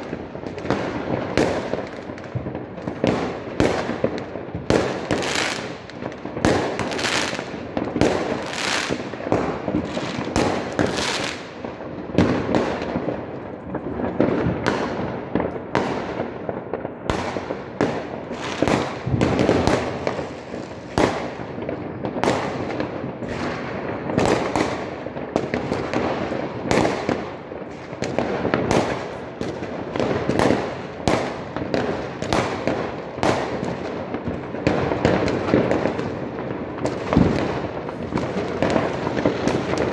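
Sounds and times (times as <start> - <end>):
fireworks bangs: 0.0 - 39.9.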